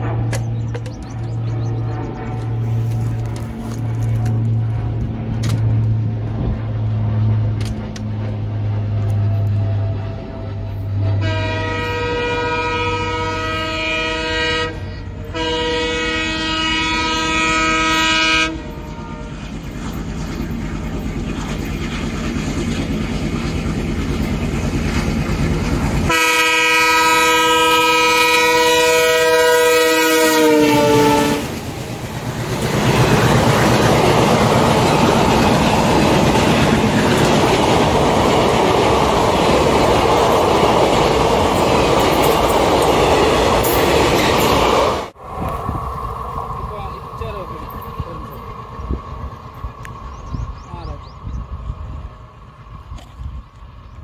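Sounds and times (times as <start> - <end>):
train wheels clickety-clack: 0.0 - 10.8, 18.8 - 27.0, 31.4 - 45.2
diesel locomotive chugging: 0.0 - 54.0
locomotive horn blasts: 9.5 - 19.5, 26.1 - 31.6.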